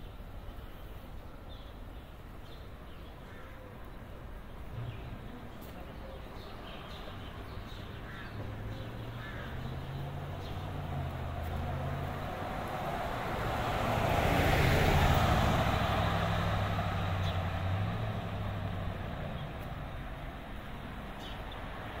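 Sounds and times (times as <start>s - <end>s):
low traffic hum: 0.0s - 22.0s
vehicle driving past: 8.5s - 19.9s.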